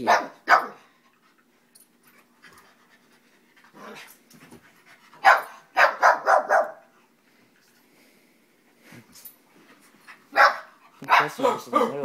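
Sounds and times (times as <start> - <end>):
puppies barking: 0.0 - 0.9, 5.2 - 6.9, 10.3 - 12.0.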